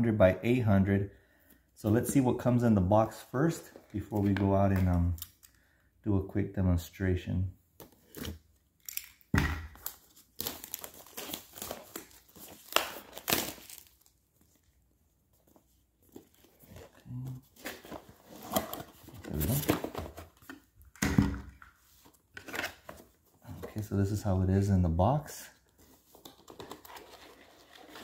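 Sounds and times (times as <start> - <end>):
plastic wrap crinkling and tearing: 8.0 - 14.7, 26.2 - 28.0.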